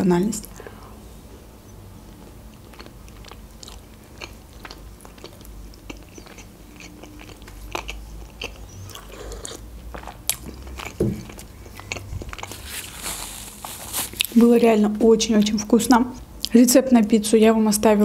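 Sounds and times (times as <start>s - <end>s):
chewing with mouth clicks: 2.0s - 13.0s.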